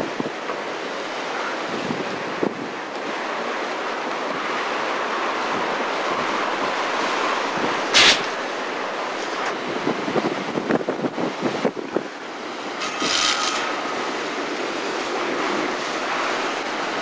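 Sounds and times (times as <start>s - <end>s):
wind buffeting microphone: 0.0s - 0.5s, 1.5s - 17.0s
rushing fire: 0.0s - 17.0s
loud crack: 7.9s - 8.4s.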